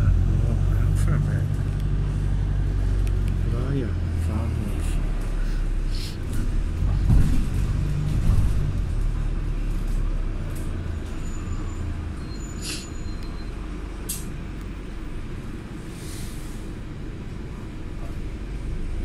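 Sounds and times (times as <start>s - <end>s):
diesel bus engine rumbling: 0.0s - 19.0s
air brake hiss: 12.5s - 13.0s, 15.9s - 16.7s
brief click: 14.1s - 14.3s.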